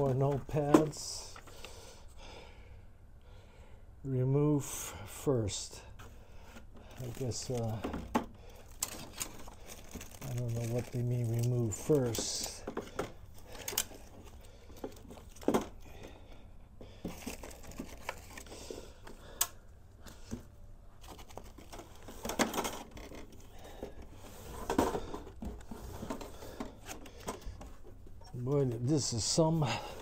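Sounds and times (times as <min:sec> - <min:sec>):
packaging rustling and crinkling: 0:06.9 - 0:15.8, 0:17.0 - 0:19.1, 0:20.1 - 0:30.0
case parts clattering: 0:06.9 - 0:16.2, 0:20.3 - 0:28.9.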